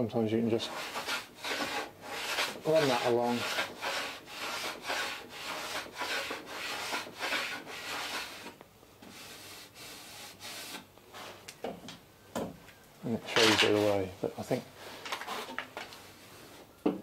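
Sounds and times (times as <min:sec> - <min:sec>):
hand plane shaving wood: 0:00.6 - 0:10.8, 0:13.3 - 0:14.0.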